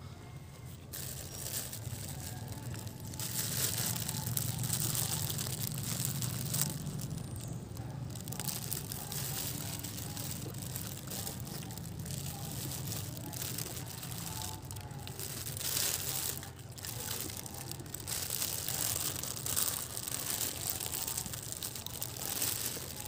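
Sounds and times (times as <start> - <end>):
monkey chewing crusty bread: 0.8 - 23.0.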